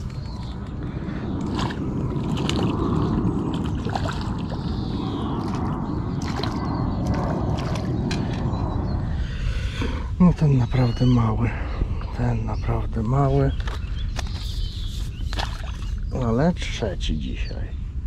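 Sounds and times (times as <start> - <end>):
steady low rumble: 0.0 - 18.0
water sloshing and splashing: 1.4 - 8.4, 15.2 - 16.0.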